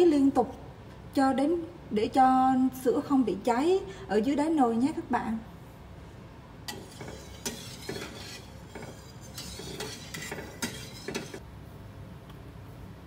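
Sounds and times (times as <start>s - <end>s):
spatula scraping a metal pot: 6.7s - 11.4s.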